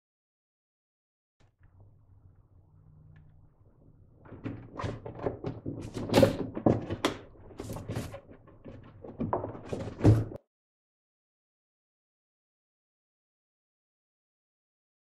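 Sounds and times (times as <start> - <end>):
plastic liner thunking and crackling: 4.2 - 10.4.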